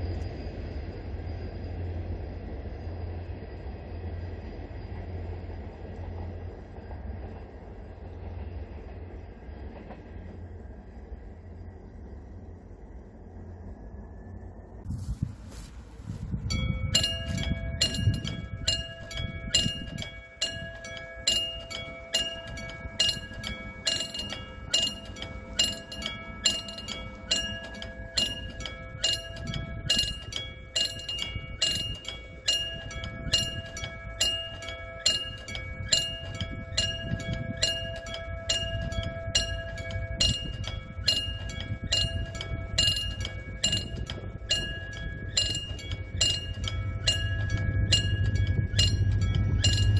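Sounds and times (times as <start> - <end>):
railroad crossing bell ringing: 14.9 - 49.9.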